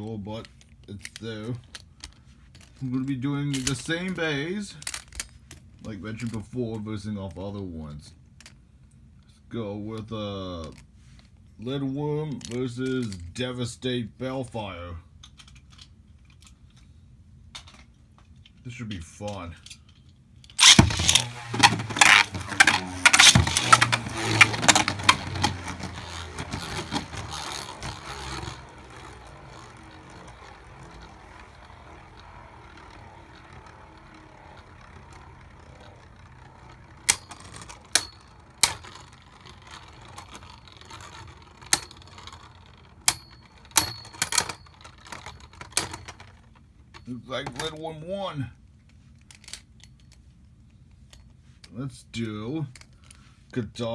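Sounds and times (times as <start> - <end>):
spinning tops clashing and rattling: 20.6 - 46.7
spinning tops whirring: 20.6 - 46.7
sharp clicks of tops hitting: 20.6 - 47.8.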